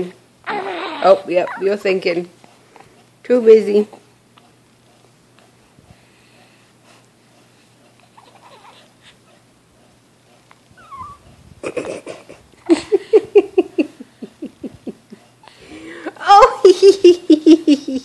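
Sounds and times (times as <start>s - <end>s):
baby laughing: 0.5s - 1.8s, 8.2s - 8.8s, 10.8s - 12.9s.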